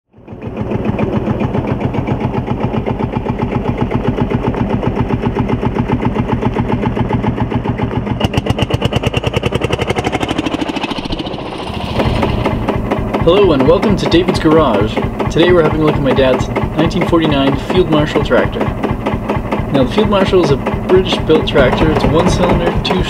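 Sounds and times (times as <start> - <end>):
diesel tractor engine running: 0.1 - 23.0.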